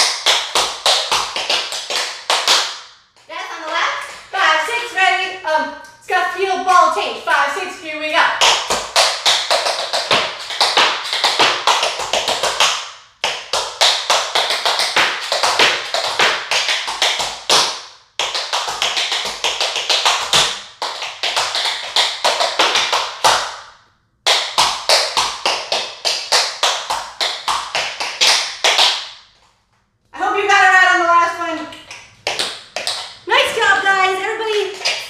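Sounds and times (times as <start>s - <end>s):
tap shoes clicking on hard floor: 0.0s - 4.3s, 8.4s - 23.6s, 24.2s - 29.1s, 31.8s - 35.0s.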